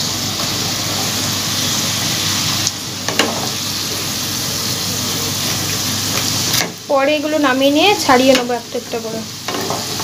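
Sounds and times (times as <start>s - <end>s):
fries sizzling in hot oil: 0.0s - 10.0s
wooden spatula turning fries: 0.0s - 10.0s.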